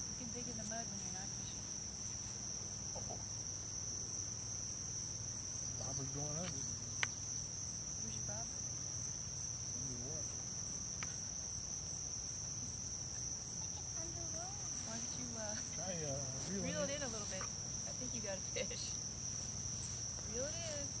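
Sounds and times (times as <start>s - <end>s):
insects trilling: 0.0s - 21.0s
soft voices: 13.6s - 19.0s, 20.2s - 21.0s.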